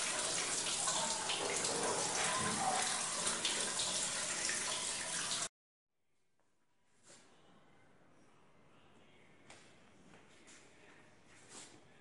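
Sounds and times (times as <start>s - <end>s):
hose water splashing into basin: 0.0s - 5.5s.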